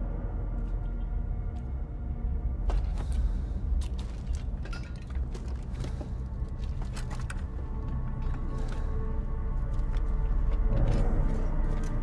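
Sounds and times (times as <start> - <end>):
deep rumble: 0.0 - 12.0.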